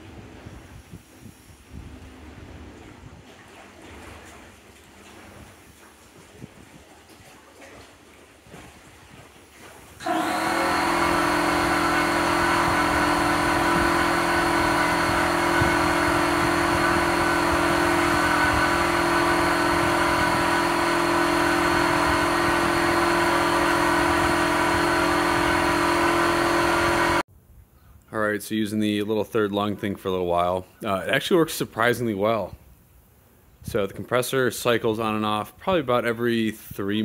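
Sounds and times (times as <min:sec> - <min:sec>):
air compressor running: 0:10.0 - 0:27.2.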